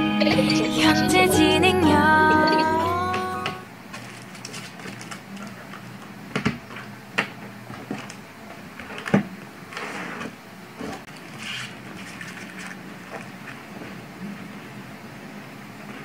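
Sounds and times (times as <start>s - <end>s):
paper rustling: 3.9s - 5.7s, 11.2s - 13.6s.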